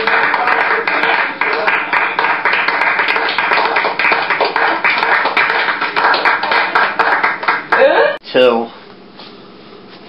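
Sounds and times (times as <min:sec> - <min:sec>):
crowd applauding: 0:00.0 - 0:08.0.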